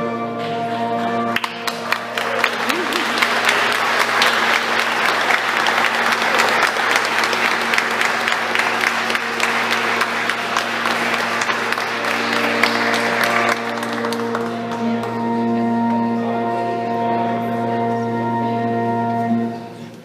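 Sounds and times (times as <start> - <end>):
people applauding: 1.3 - 15.5.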